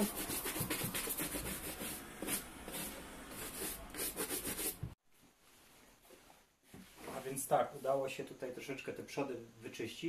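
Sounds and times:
brush scrubbing suede: 0:00.0 - 0:04.9.

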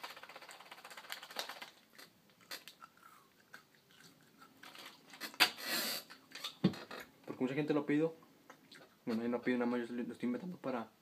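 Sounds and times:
mouth chewing gum: 0:01.9 - 0:06.6
short hissing burst: 0:05.4 - 0:06.1.

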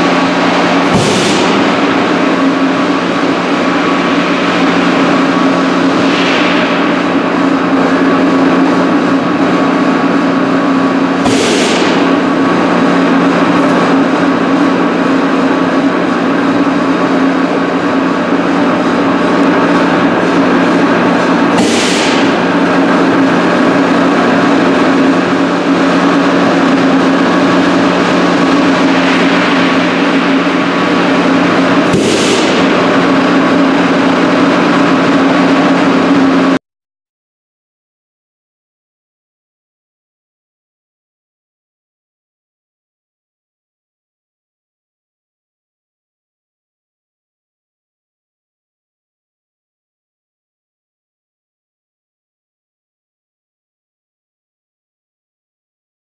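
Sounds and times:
compressed air blasts: 0:00.0 - 0:04.7, 0:11.2 - 0:12.4, 0:21.5 - 0:22.7, 0:28.5 - 0:33.8
extraction system humming: 0:00.0 - 0:36.6.

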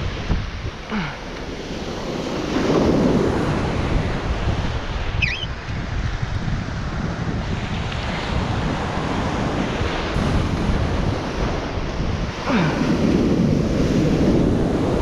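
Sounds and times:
ocean surf breaking: 0:00.0 - 0:15.0
wind buffeting microphone: 0:00.0 - 0:15.0
faint high wavering call: 0:05.2 - 0:05.5.

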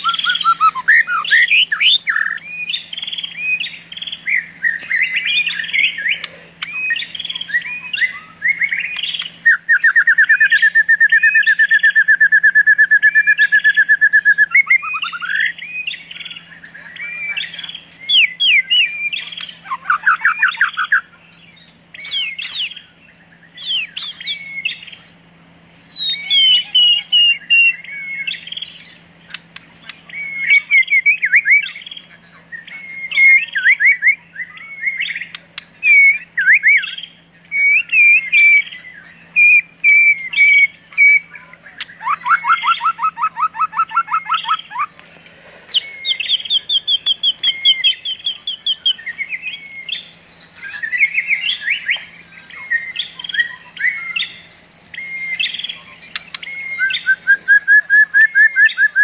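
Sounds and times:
birds singing and calling: 0:00.0 - 0:59.0
faint low hum: 0:00.0 - 0:59.0.

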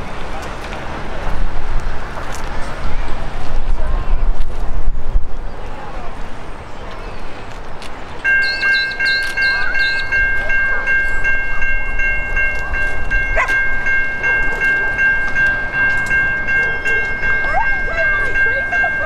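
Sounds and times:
level crossing bell ringing: 0:08.3 - 0:19.0.

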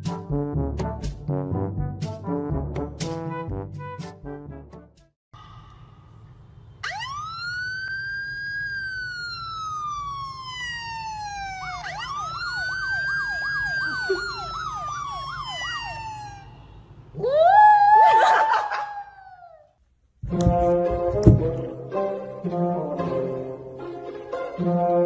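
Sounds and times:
siren wailing: 0:06.8 - 0:19.6.

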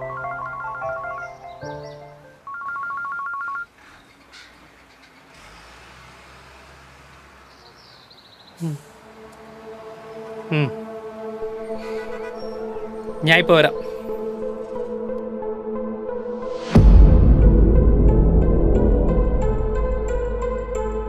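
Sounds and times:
electronic telephone ringtone: 0:00.0 - 0:01.7, 0:02.4 - 0:03.7
background music: 0:00.0 - 0:02.5, 0:08.8 - 0:21.0
short vocal sound: 0:08.6 - 0:09.0, 0:10.5 - 0:10.8.

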